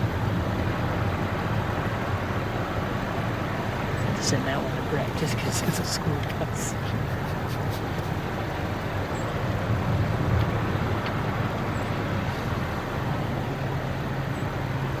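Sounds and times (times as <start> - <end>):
low rumbling background: 0.0 - 15.0
truck engine running: 0.0 - 15.0
tyres swishing through water: 1.9 - 13.8.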